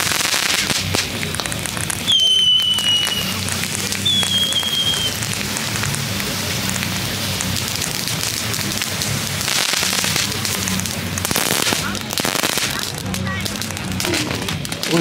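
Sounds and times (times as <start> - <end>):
firework crackles: 0.0 - 15.0
firework hissing: 0.0 - 15.0.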